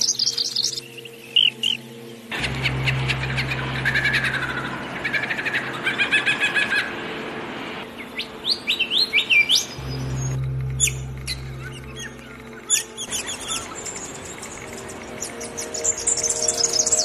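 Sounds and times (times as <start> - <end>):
songbirds singing: 0.0 - 6.8, 7.9 - 17.0.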